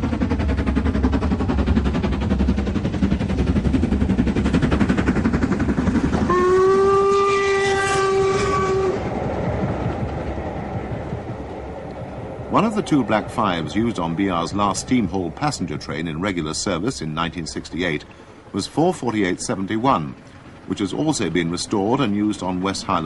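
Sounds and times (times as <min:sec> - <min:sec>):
steam locomotive exhaust beats: 0:00.0 - 0:23.0
train wheel noise: 0:00.0 - 0:23.0
steam whistle: 0:06.3 - 0:09.1.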